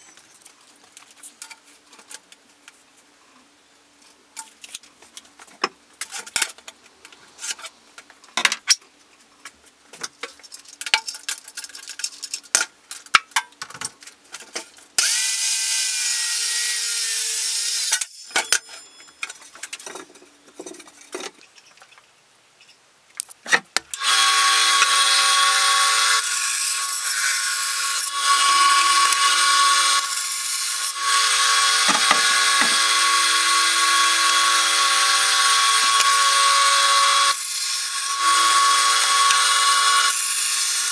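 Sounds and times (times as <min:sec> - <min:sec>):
electric saw cutting plywood: 0:15.0 - 0:18.1, 0:24.0 - 0:40.9.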